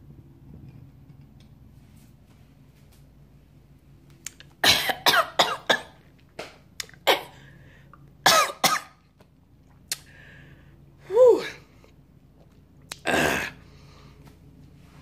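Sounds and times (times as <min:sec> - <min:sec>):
woman clearing her throat: 0:04.6 - 0:05.9
woman coughing: 0:04.6 - 0:06.0, 0:08.3 - 0:08.9.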